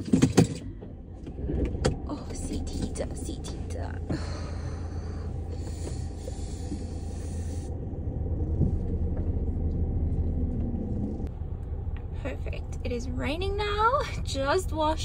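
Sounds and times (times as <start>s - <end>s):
car engine rumble in cabin: 0.0s - 15.0s
hiss: 5.6s - 7.7s.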